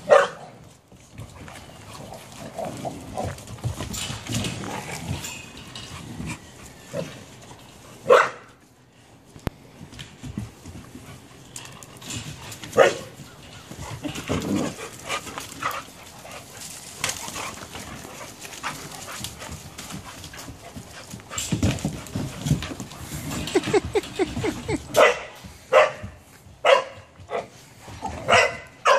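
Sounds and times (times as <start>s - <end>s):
puppy barking: 0.1s - 0.4s, 8.1s - 8.5s, 24.9s - 26.0s, 26.6s - 27.5s, 28.2s - 28.9s
knocks and thumps of scuffling: 16.9s - 25.0s.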